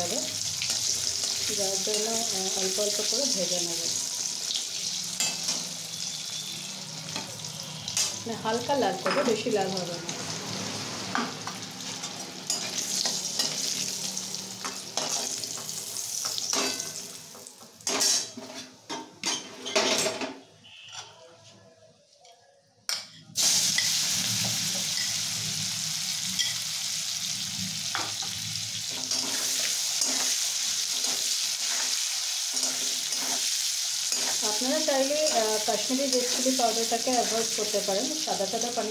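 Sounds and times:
paneer sizzling in hot oil: 0:00.0 - 0:19.5, 0:23.4 - 0:38.9
metal spatula scraping pan: 0:17.8 - 0:21.2, 0:28.9 - 0:36.6.

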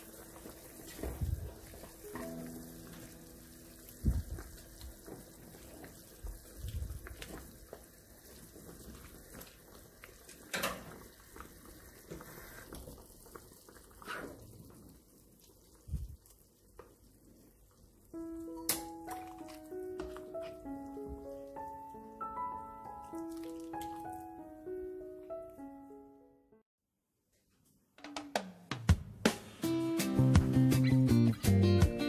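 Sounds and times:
soup simmering: 0:00.0 - 0:24.5.

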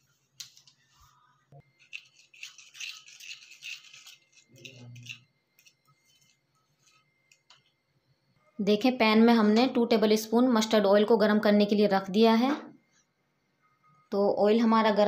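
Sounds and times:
spoon scraping ceramic bowl: 0:01.9 - 0:07.5.

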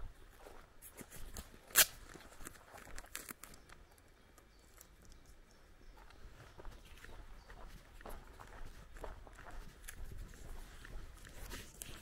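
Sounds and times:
footsteps on grassy dirt track: 0:00.0 - 0:03.9, 0:05.8 - 0:12.0
sharp crack: 0:01.7 - 0:02.1.

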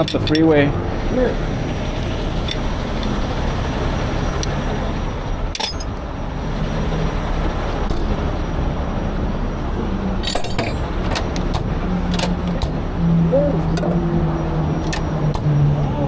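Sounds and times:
diesel truck engine rumble: 0:00.0 - 0:16.0
freeway traffic: 0:00.0 - 0:16.0
metallic clicks and clinks: 0:05.5 - 0:05.9, 0:10.2 - 0:11.5.

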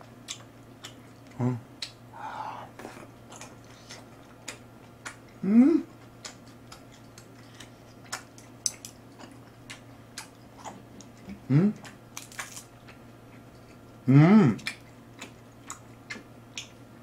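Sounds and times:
person chewing: 0:00.2 - 0:14.0, 0:14.6 - 0:16.8
person humming: 0:01.4 - 0:01.6, 0:02.2 - 0:02.8, 0:05.4 - 0:05.9, 0:11.5 - 0:11.8.

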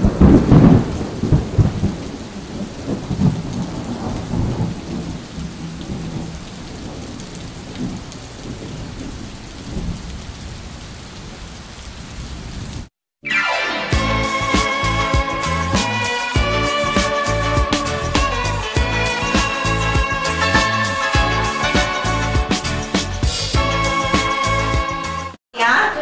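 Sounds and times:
thunder rumbling: 0:00.0 - 0:12.9
steady rain: 0:00.0 - 0:13.0, 0:14.1 - 0:25.0.

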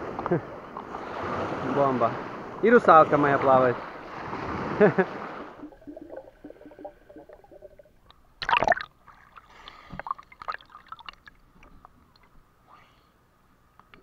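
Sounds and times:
water splashing: 0:00.8 - 0:12.4
water gurgling and bubbling: 0:04.0 - 0:11.4.

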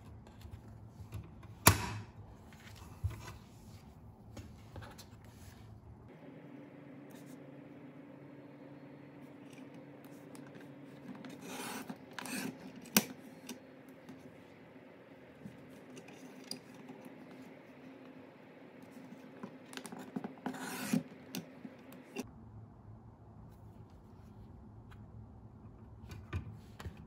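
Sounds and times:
paper trimmer blade scraping: 0:10.4 - 0:13.6, 0:19.8 - 0:21.5.

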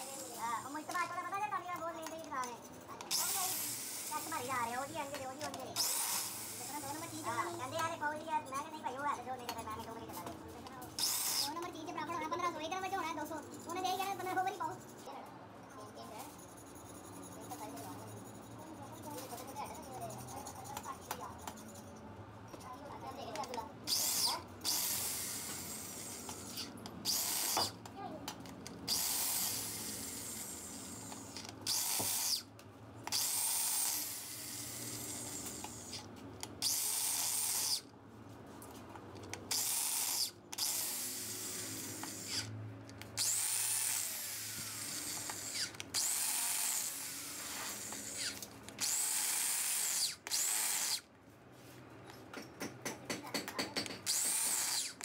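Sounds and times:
power tool whining: 0:23.9 - 0:27.8, 0:28.9 - 0:37.9, 0:39.5 - 0:51.1, 0:54.0 - 0:55.0.

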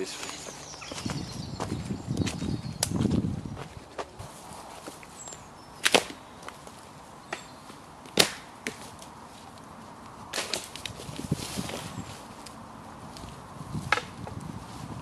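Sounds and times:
dry sticks cracking and snapping: 0:04.9 - 0:14.5.

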